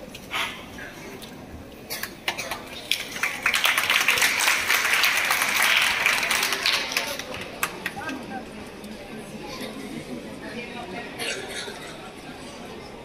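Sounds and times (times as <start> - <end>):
children clapping: 2.0 - 8.2.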